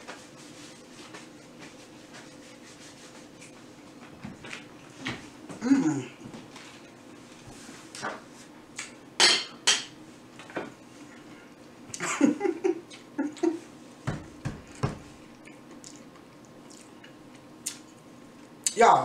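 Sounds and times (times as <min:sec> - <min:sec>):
murmured vocal sounds: 0:05.6 - 0:06.2.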